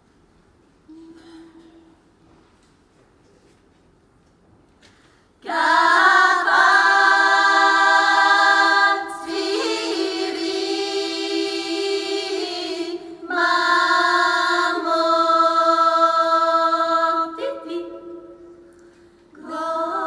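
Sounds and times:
women's choir singing a cappella: 5.4s - 18.7s, 19.3s - 20.0s.

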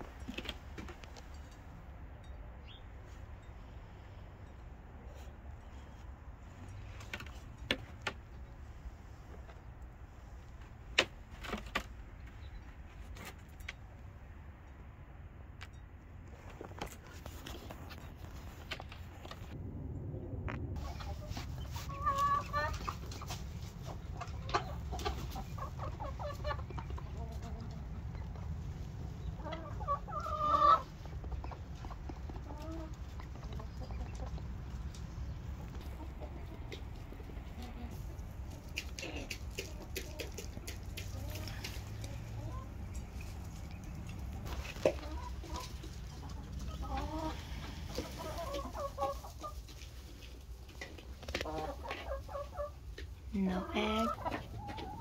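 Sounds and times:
chickens clucking softly: 20.8s - 55.0s.

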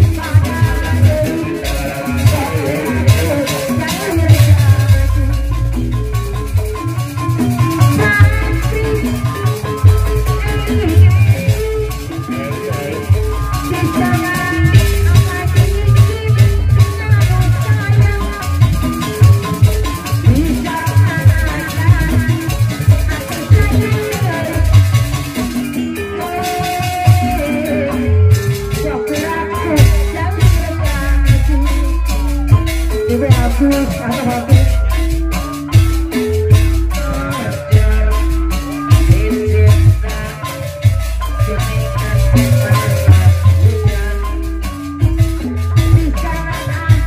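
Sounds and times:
hand drumming: 0.0s - 47.0s
melody line: 0.0s - 47.0s.

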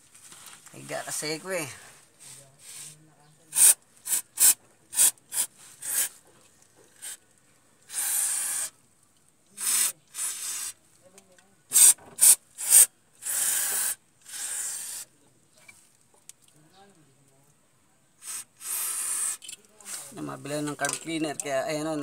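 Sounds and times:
aerosol spray bursts: 2.6s - 6.2s, 7.9s - 8.7s, 9.6s - 10.8s, 11.7s - 15.1s, 18.2s - 20.2s.

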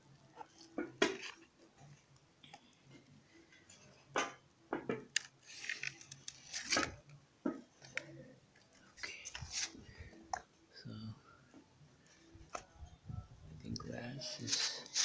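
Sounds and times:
crackling scrape: 14.2s - 15.0s.

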